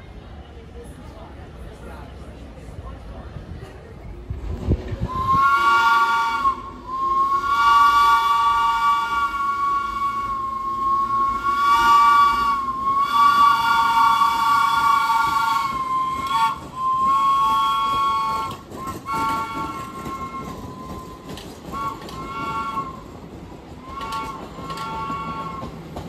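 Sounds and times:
train wheels squealing on rails: 0:06.3 - 0:26.0.

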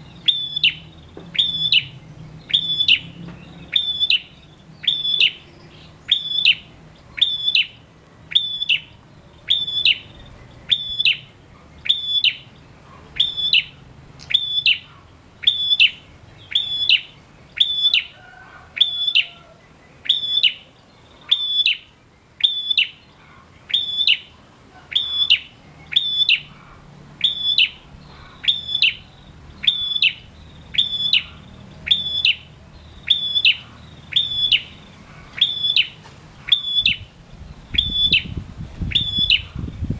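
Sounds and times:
bird singing high note: 0:00.0 - 0:12.4.

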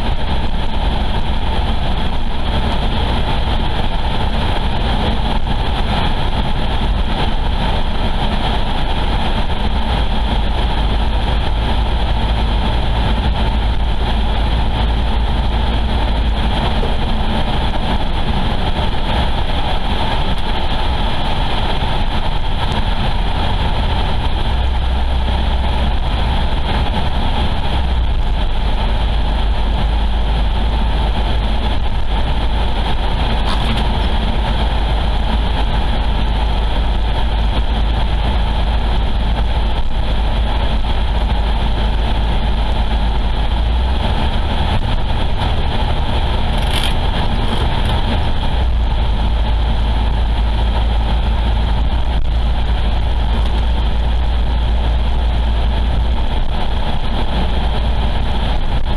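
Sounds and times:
car road noise and engine hum: 0:00.0 - 0:58.9.

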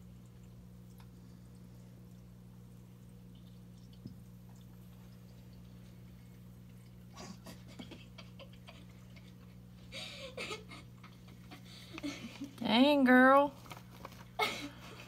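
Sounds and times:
low electrical hum: 0:00.0 - 0:15.0
faint rustles and clicks: 0:13.5 - 0:15.0.

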